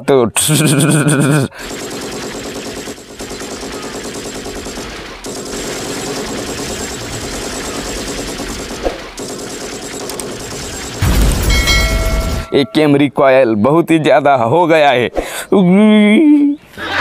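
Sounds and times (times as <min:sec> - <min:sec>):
automatic gunfire bursts: 0:01.6 - 0:11.6.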